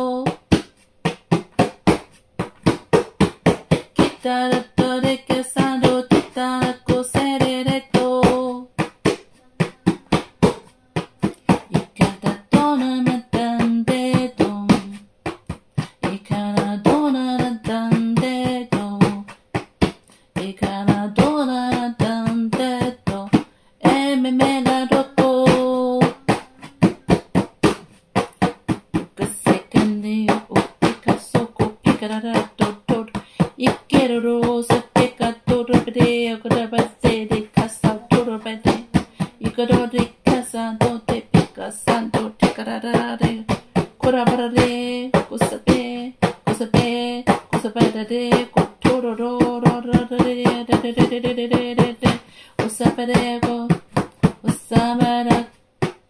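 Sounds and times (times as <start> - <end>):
fast sharp taps: 0.0 - 56.0
person chanting syllables: 9.3 - 11.0.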